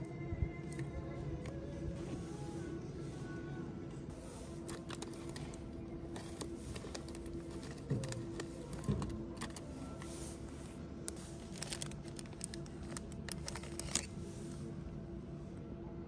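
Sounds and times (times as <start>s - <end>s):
faint steady hum: 0.0s - 16.0s
plastic packaging crinkling: 4.6s - 10.1s, 11.0s - 14.2s.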